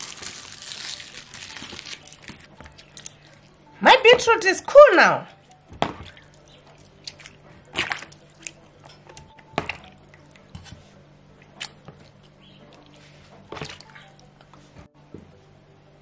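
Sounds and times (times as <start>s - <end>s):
wet squelches and small splashes: 5.3s - 14.3s.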